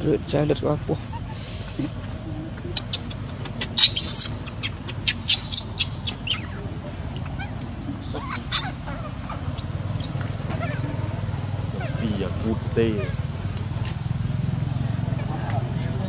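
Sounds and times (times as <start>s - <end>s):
baby monkey squeaking: 0.9s - 12.0s, 12.9s - 13.4s.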